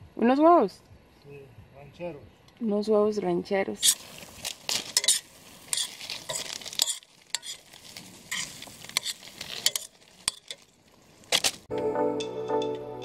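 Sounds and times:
utensil scraping pan: 3.8 - 10.7
eggs sizzling in pan: 3.8 - 11.7.

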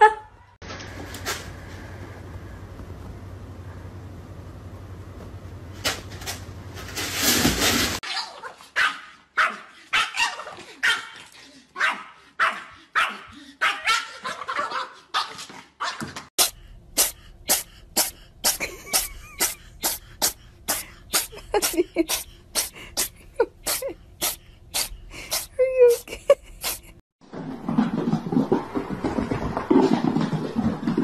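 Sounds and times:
small dog barking: 8.1 - 11.2, 11.8 - 16.0
quick short sharp sounds: 16.4 - 23.1.

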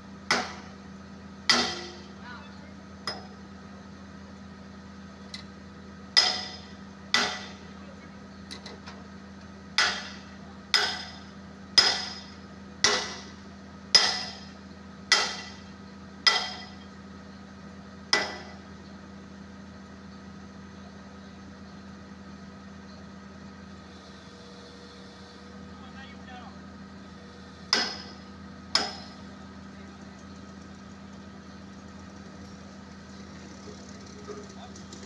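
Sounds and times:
excavator engine idling: 0.0 - 35.0
hammer striking steel pin: 1.5 - 2.0, 6.2 - 7.5, 9.8 - 11.2, 11.8 - 13.2, 14.0 - 14.5, 15.1 - 15.6, 16.2 - 16.8, 18.1 - 18.6, 27.7 - 28.2, 28.8 - 29.2.

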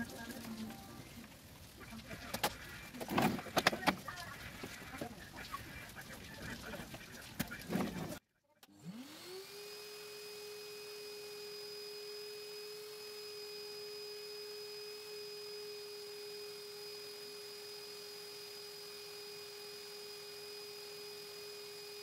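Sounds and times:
vacuum cleaner motor whine: 8.7 - 22.0.

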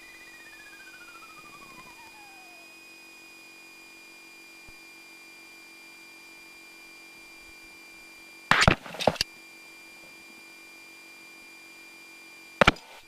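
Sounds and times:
thin electrical whines: 0.0 - 13.0.

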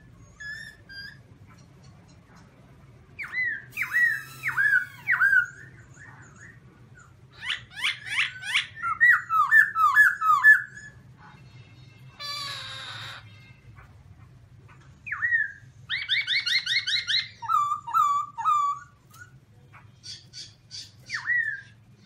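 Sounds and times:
bird singing ringing whistles: 3.2 - 5.7.

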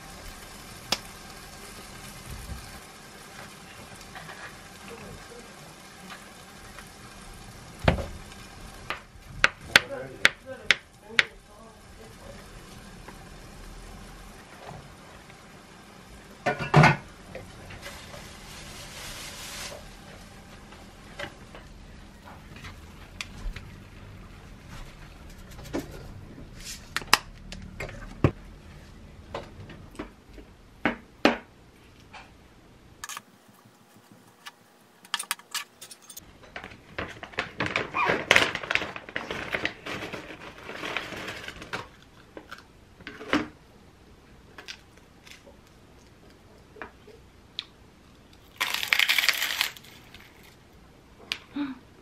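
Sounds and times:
utensils and kitchenware clinking: 35.0 - 37.1
plastic snack pouch crinkling: 48.4 - 50.6.

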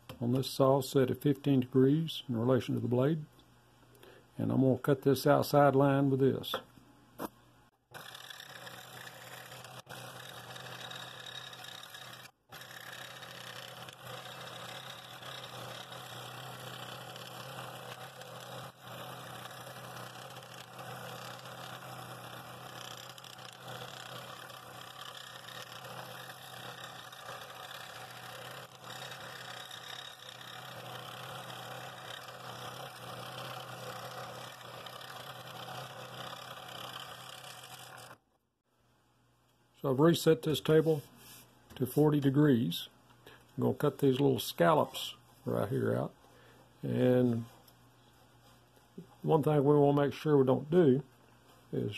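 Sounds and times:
scroll saw motor hum: 7.9 - 38.2
saw blade rasping in wood: 8.0 - 38.2.

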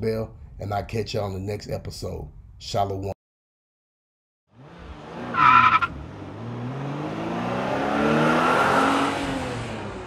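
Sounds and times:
high screech: 5.4 - 5.9.

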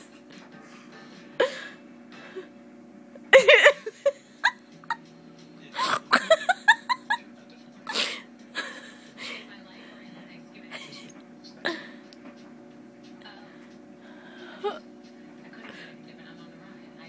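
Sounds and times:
steady low hum: 0.0 - 17.0
people laughing: 3.4 - 5.0, 5.8 - 7.3, 7.9 - 9.4.

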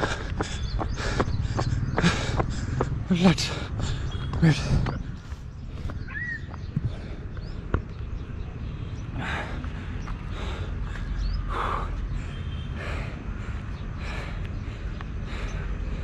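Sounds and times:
person breathing hard: 0.0 - 4.9, 9.1 - 16.0.

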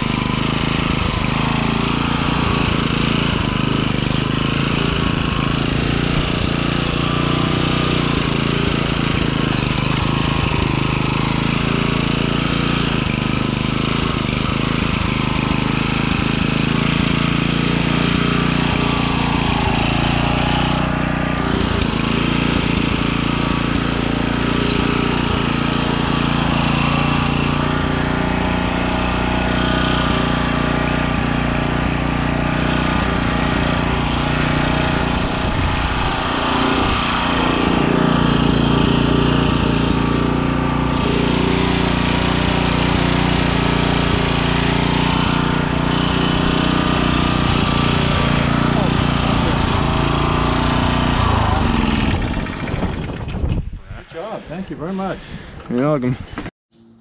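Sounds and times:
garden tiller engine running: 0.0 - 57.0.

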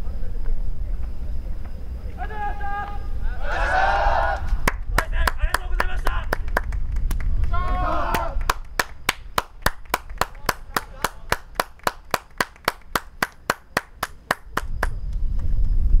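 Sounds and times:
hands clapping: 4.4 - 15.0.

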